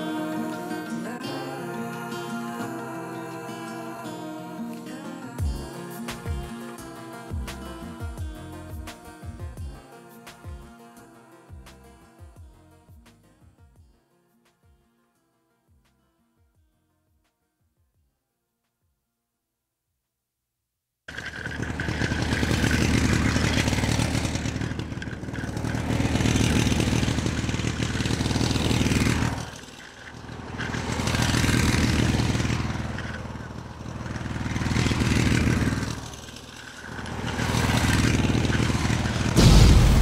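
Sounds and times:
toy truck motor whirring: 21.1 - 34.4, 35.6 - 39.4
loud thump: 39.4 - 40.0.

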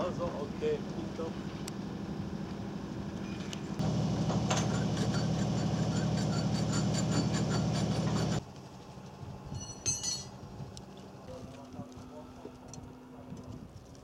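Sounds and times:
diesel truck engine droning: 0.0 - 8.4
brief high squeak: 4.5 - 8.4.

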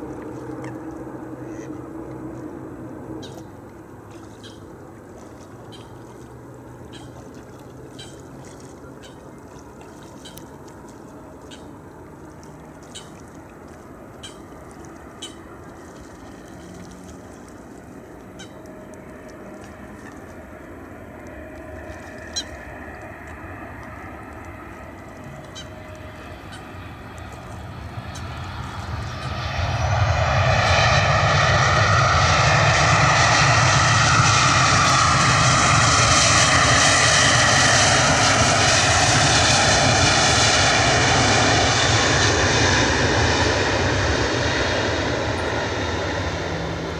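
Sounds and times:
jet engine roar: 9.4 - 46.9.

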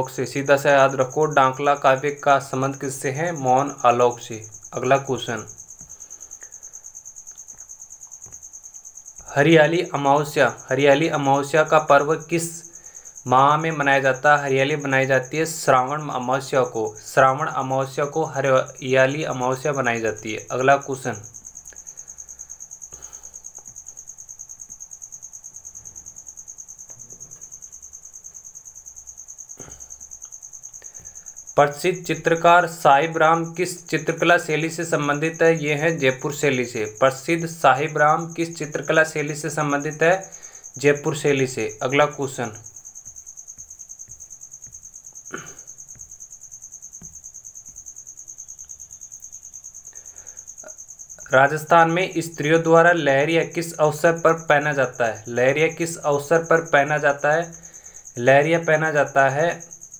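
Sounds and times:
cricket trilling: 0.0 - 59.9.

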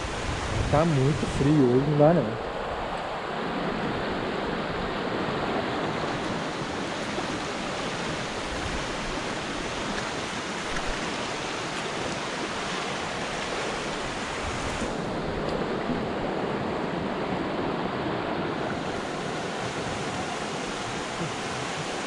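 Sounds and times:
river rushing over rocks: 0.0 - 22.0.

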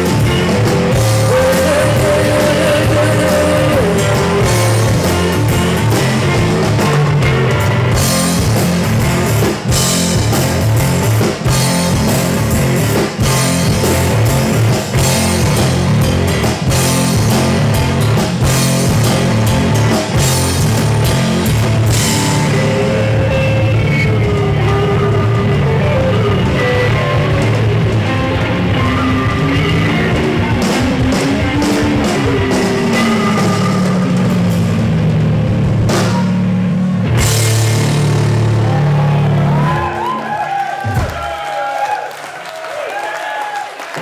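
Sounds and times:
drums hitting cymbals: 0.0 - 23.1, 26.4 - 38.5
blues-rock band playing live: 0.0 - 41.2.

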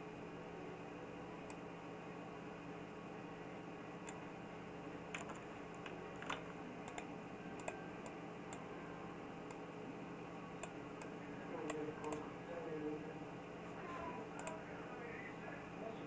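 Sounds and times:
faint high whine: 0.0 - 16.0
computer mouse clicks: 5.1 - 8.6, 10.6 - 12.3, 14.4 - 14.6.

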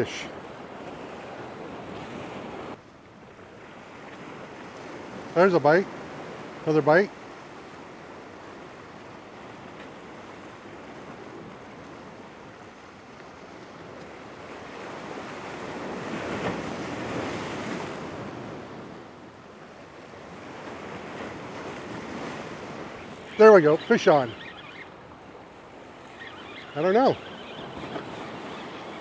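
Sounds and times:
surf washing against boulders: 4.2 - 29.0
wave breaking: 20.3 - 29.0.

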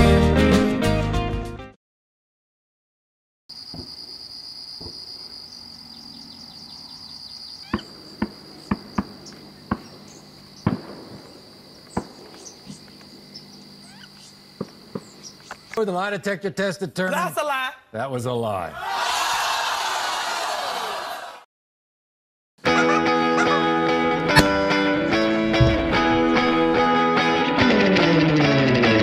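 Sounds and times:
crickets trilling: 3.5 - 15.8
distant shotgun shots: 7.7 - 13.2, 14.5 - 15.4.

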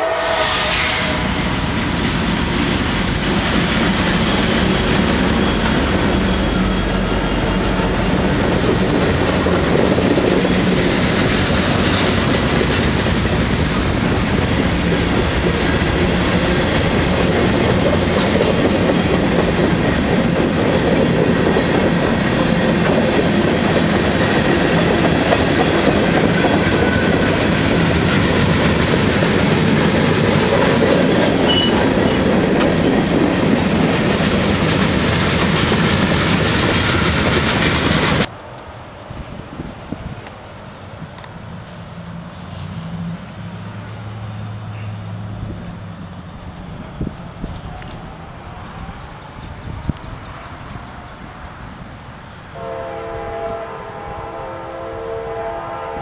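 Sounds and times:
diesel locomotives rumbling: 0.0 - 56.0
train wheels on rails clacking: 0.4 - 38.3.

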